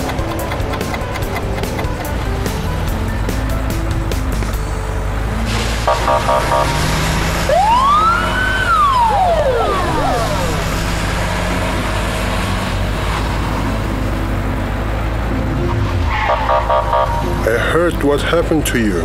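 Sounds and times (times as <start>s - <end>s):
siren wail: 5.9s - 11.3s, 16.0s - 17.4s.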